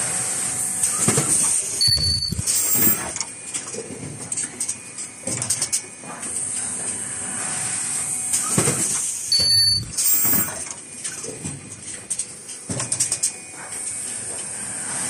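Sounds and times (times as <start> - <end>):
pneumatic cylinders knocking and hissing: 0.9 - 3.2, 8.4 - 11.7
brief high-pitched tone: 1.8 - 3.0, 9.3 - 10.6.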